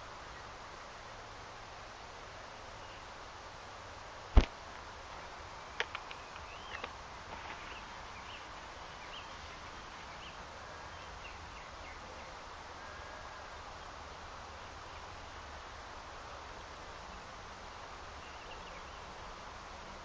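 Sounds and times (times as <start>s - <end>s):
steady outdoor hiss: 0.0s - 20.0s
small birds chirping: 5.5s - 15.8s, 16.9s - 19.4s
light clicks: 5.8s - 7.0s.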